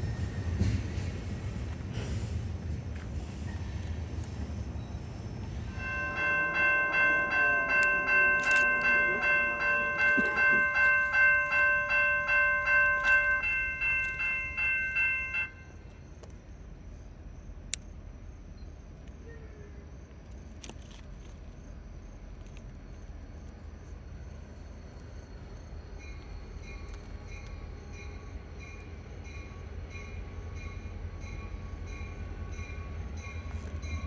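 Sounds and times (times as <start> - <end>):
railroad crossing bell ringing: 4.8 - 15.9, 25.9 - 34.0.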